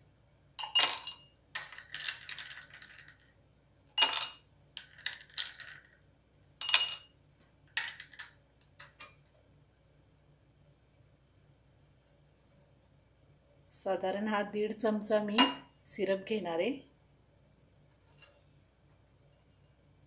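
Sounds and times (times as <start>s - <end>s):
ice clinking against glass: 0.6s - 3.2s, 4.0s - 5.9s, 6.6s - 7.1s.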